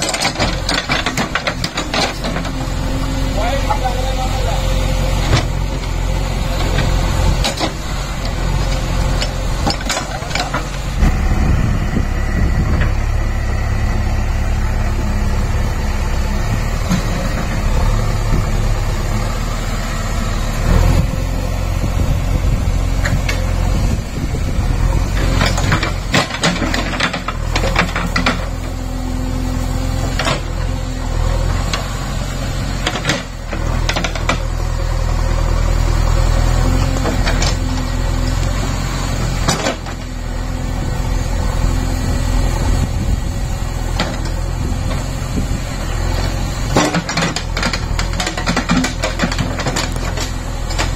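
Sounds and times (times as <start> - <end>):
backhoe bucket knocks and clanks: 0.0 - 2.6, 46.7 - 50.9
diesel engine running: 0.0 - 50.9.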